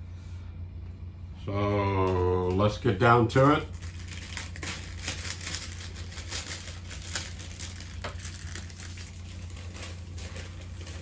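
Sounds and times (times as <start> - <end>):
steady low hum: 0.0 - 11.0
plastic bag crinkling: 3.3 - 11.0.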